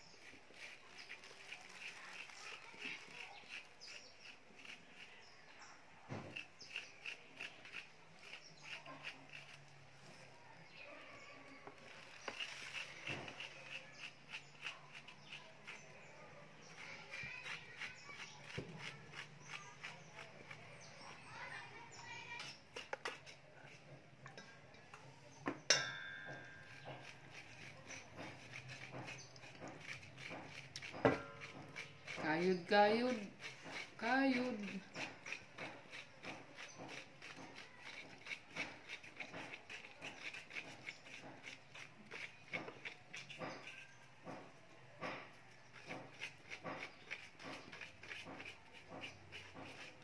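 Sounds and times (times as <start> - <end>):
spoon scraping banana flesh: 0.0 - 10.8, 11.4 - 24.8, 25.4 - 50.0
spoon striking metal bowl: 25.7 - 26.8.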